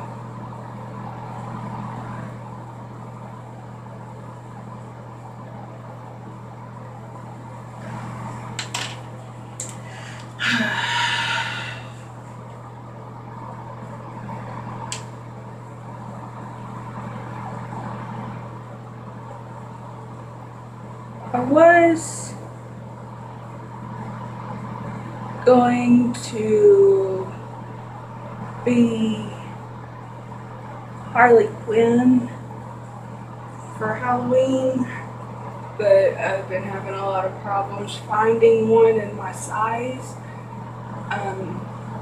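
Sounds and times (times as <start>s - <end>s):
room ventilation hum: 0.0s - 42.0s
breathy rush of noise: 9.8s - 12.2s.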